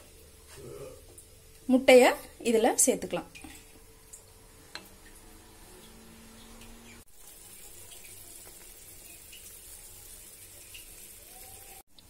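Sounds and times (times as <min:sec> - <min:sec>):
gravy bubbling in a pan: 0:03.2 - 0:11.9.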